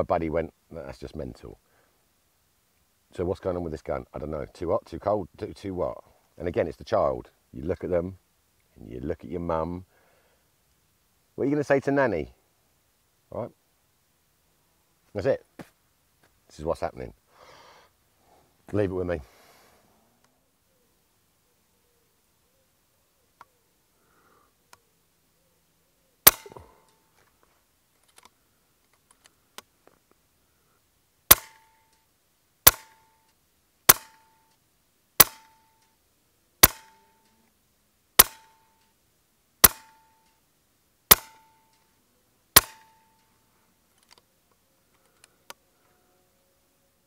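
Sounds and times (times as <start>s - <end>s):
air rifle shots: 26.2s - 26.8s, 31.3s - 31.8s, 32.6s - 33.1s, 33.9s - 34.3s, 35.2s - 35.6s, 36.6s - 37.1s, 38.2s - 38.6s, 39.6s - 40.1s, 41.1s - 41.6s, 42.6s - 43.0s.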